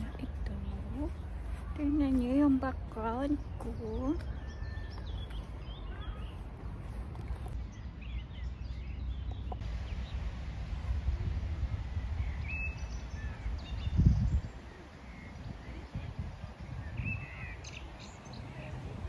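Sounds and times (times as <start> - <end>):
steady low rumble: 0.0 - 16.9
faint bird chirps: 3.4 - 7.0.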